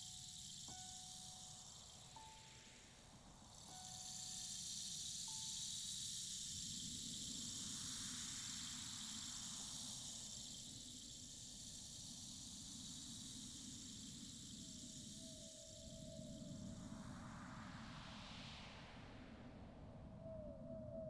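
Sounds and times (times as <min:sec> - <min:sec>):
faint thin held tones: 0:00.0 - 0:02.9
steady hissing noise: 0:00.0 - 0:19.4.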